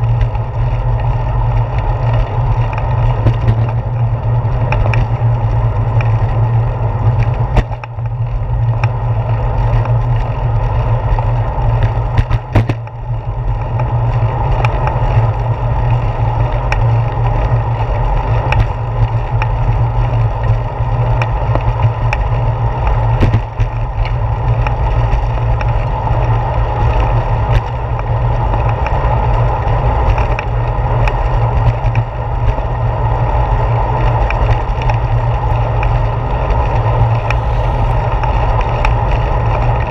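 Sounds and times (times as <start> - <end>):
bicycle rolling rumble: 0.0 - 39.9
bike knocking over bumps: 2.7 - 4.0, 11.8 - 13.0, 23.1 - 23.9
wind buffeting: 35.0 - 39.9.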